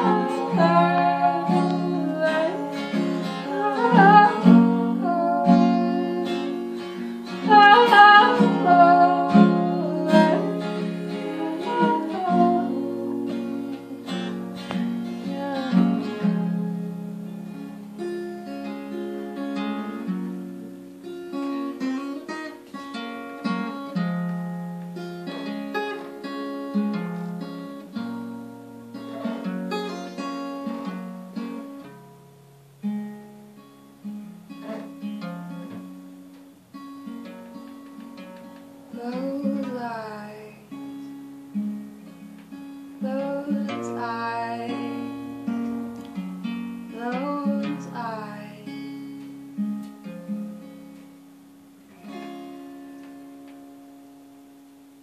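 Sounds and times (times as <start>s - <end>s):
woman singing: 0.0s - 18.1s, 38.9s - 41.0s, 43.0s - 45.6s, 46.9s - 49.1s
acoustic guitar picking: 0.0s - 55.0s.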